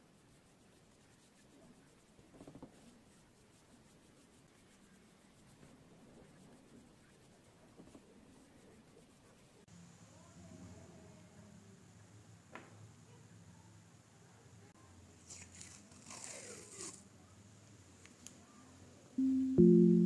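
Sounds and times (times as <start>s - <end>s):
paintbrush swishing on paper: 0.0s - 9.7s.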